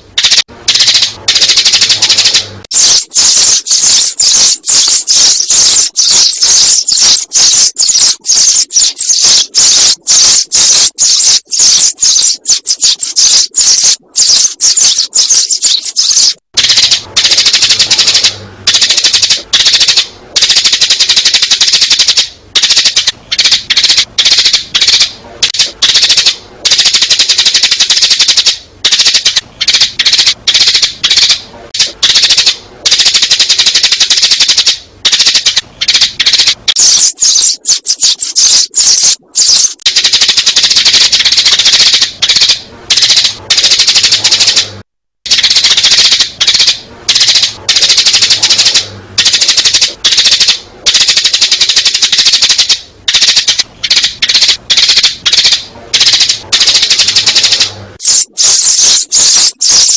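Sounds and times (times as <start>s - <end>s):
sparrows chirping: 2.2s - 16.4s, 36.7s - 39.8s, 58.0s - 59.9s.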